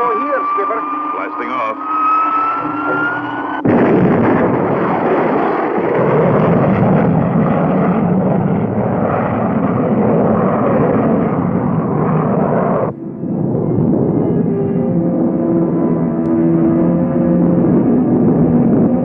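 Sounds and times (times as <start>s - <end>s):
cartoon rocket engines blasting off: 0.0s - 14.7s.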